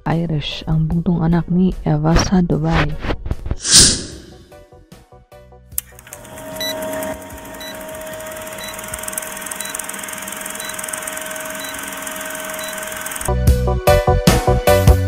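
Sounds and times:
film projector whirring: 5.8 - 13.4.

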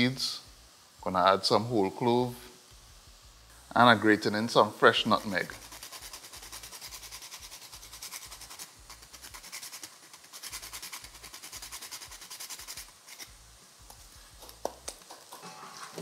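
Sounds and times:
nutmeg grated on metal grater: 5.1 - 13.3.

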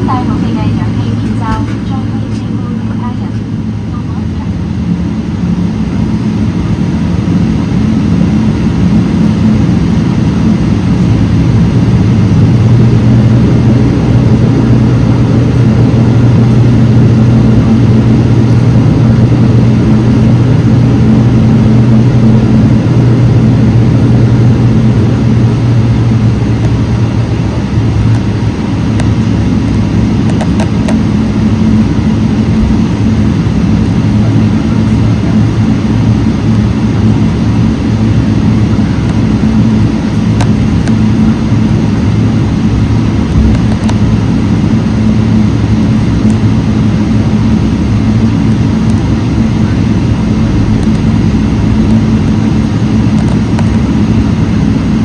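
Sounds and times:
jet engine drone in cabin: 0.0 - 55.0.

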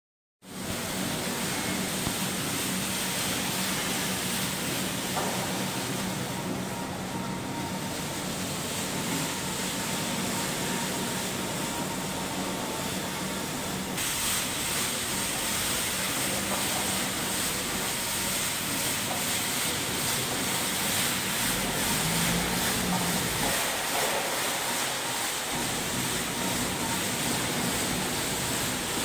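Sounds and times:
machine hum: 0.5 - 29.0
brush bristles sweeping concrete: 14.0 - 29.0.

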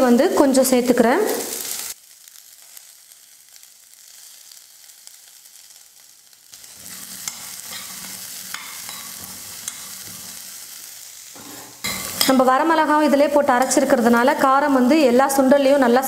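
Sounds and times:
chickpeas sizzling in oil: 0.0 - 16.0
spatula scraping pan: 6.6 - 10.6, 11.3 - 12.4.

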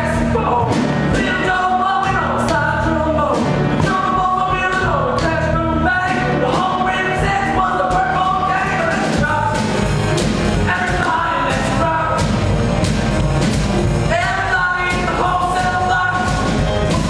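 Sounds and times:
rock and roll song with singing: 0.0 - 17.0.

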